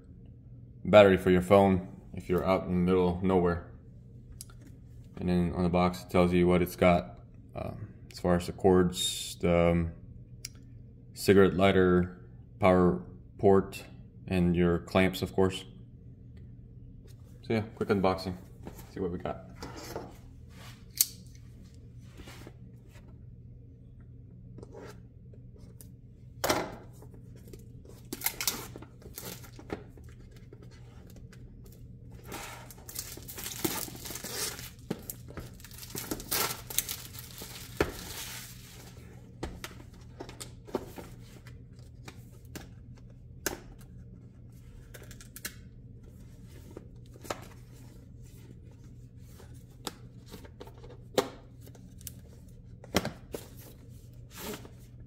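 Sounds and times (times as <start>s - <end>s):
cardboard packaging tearing: 28.1s - 29.6s, 32.3s - 38.6s.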